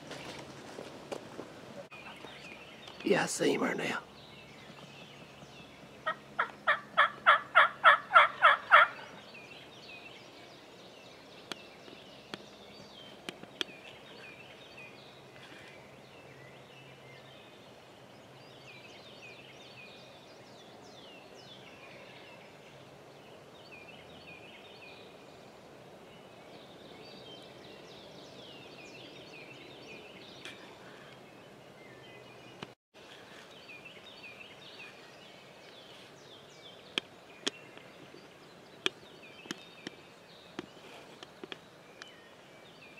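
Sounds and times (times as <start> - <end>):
faint songbird chirps: 1.9 - 42.9
wild turkey yelps: 6.1 - 9.1.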